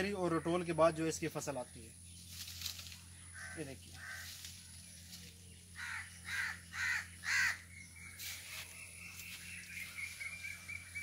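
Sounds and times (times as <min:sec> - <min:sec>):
crow cawing: 0:03.2 - 0:04.6, 0:05.8 - 0:07.7.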